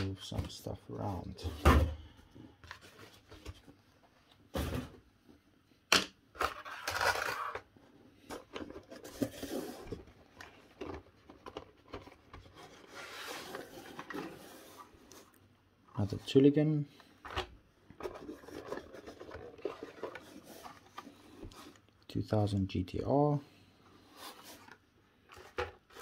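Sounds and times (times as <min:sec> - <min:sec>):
card rustling against cardboard: 0:06.4 - 0:22.0, 0:23.7 - 0:26.0.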